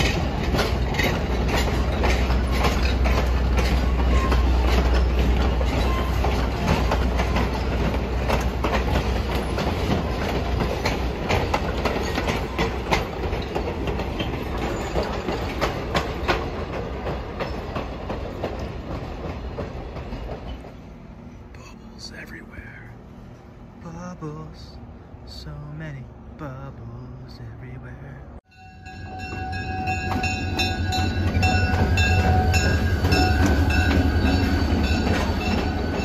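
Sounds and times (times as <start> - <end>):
train wheels clicking over rail joints: 0.0 - 21.4, 29.2 - 36.0
train rolling rumble: 0.0 - 36.0.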